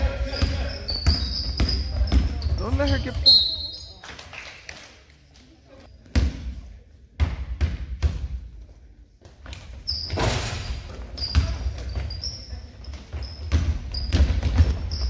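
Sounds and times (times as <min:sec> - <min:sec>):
sneakers squeaking on court: 0:00.1 - 0:04.0, 0:09.4 - 0:15.0
basketball dribbling on wooden floor: 0:13.3 - 0:15.0.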